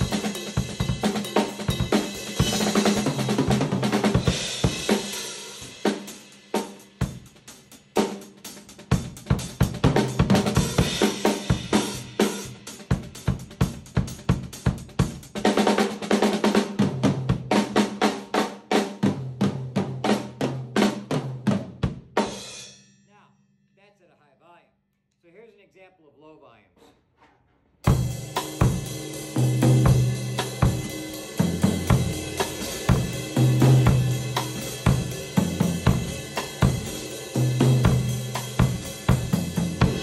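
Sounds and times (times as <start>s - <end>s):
drum kit groove: 0.0s - 22.8s, 27.8s - 40.0s.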